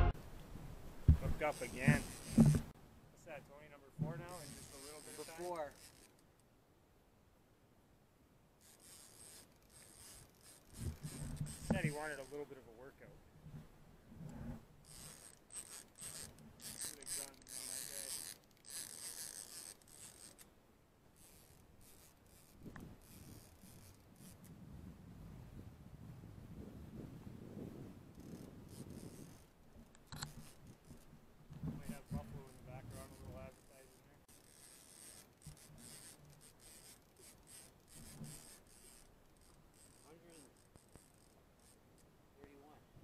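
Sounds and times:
faint scratchy rustling: 0:00.0 - 0:06.4, 0:08.6 - 0:20.5, 0:28.2 - 0:42.8
fishing reel being cranked: 0:01.3 - 0:02.7, 0:04.0 - 0:06.4, 0:08.6 - 0:12.6, 0:14.3 - 0:20.5, 0:21.2 - 0:24.5, 0:28.1 - 0:31.1, 0:31.8 - 0:42.1.

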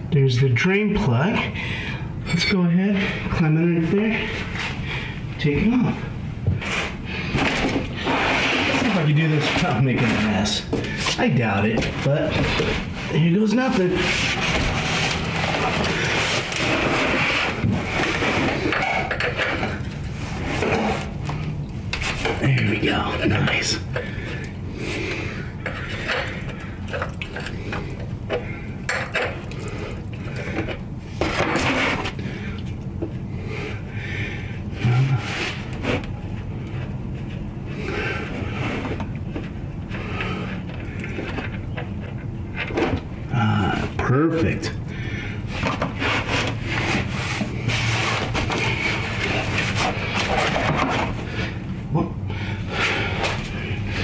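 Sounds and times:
steady low hum: 0:00.0 - 0:54.0
metal scrapes: 0:06.6 - 0:10.6.

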